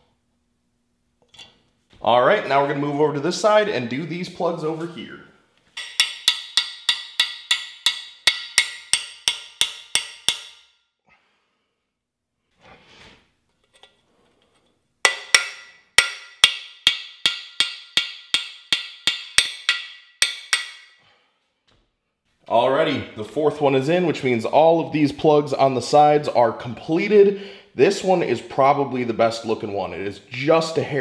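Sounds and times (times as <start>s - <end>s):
hammer striking metal socket: 5.8s - 10.7s, 15.0s - 21.0s.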